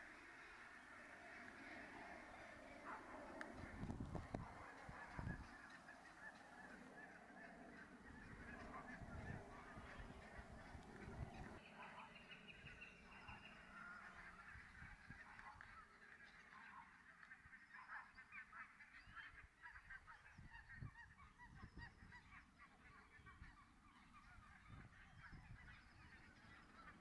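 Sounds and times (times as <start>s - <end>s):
geese honking: 0.0s - 21.4s.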